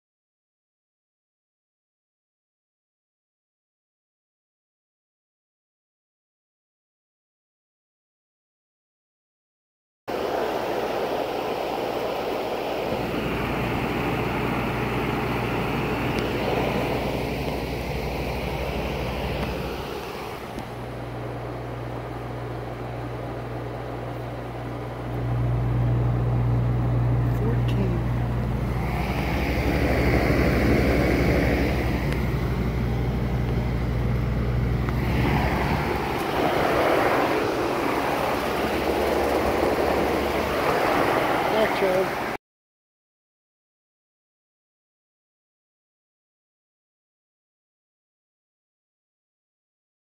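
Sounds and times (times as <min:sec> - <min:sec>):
low compressor hum: 0:10.1 - 0:42.0
condenser fan rushing: 0:10.1 - 0:42.4.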